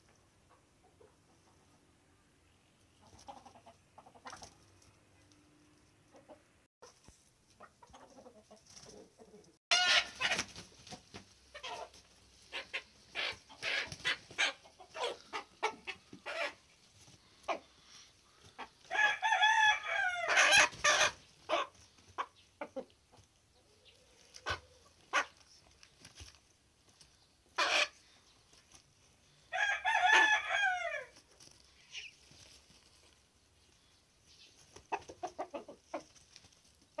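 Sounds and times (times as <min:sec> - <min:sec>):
chickens clucking and squawking: 0:00.0 - 0:37.0
rooster crowing: 0:18.9 - 0:20.7, 0:29.5 - 0:31.1.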